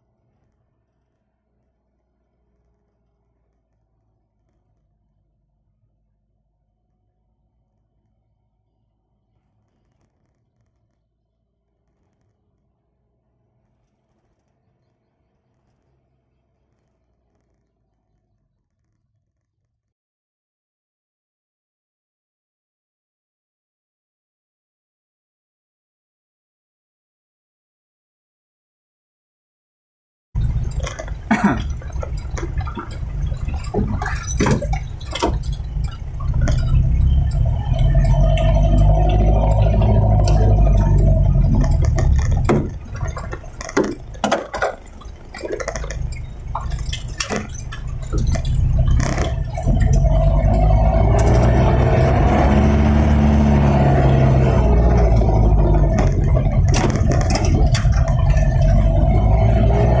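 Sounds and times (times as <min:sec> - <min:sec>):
diesel truck engine running: 0:30.4 - 0:44.2, 0:44.9 - 1:00.0
clicks: 0:30.4 - 1:00.0
knocks and rattles on rough road: 0:30.4 - 1:00.0.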